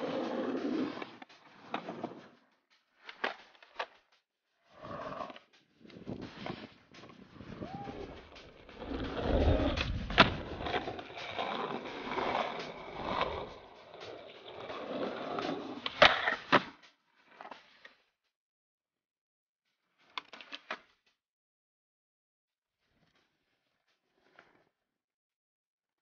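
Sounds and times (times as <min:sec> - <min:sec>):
skateboard wheels rolling on stone: 0:00.0 - 0:02.4, 0:04.7 - 0:17.8
skateboard clacks: 0:05.0 - 0:16.8.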